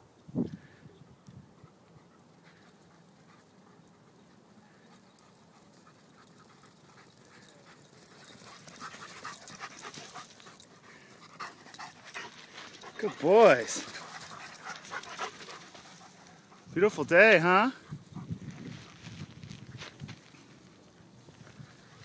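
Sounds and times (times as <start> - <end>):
dog panting: 1.6 - 16.8.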